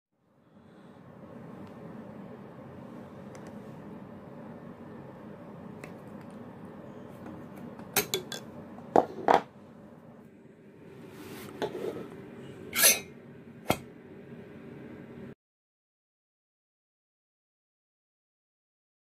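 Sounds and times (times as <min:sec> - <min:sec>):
steady low hum: 0:00.2 - 0:15.4.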